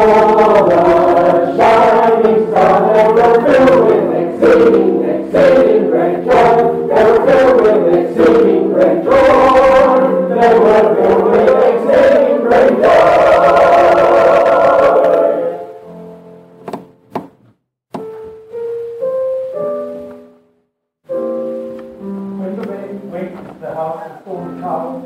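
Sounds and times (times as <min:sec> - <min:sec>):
choir singing a hymn: 0:00.0 - 0:15.7.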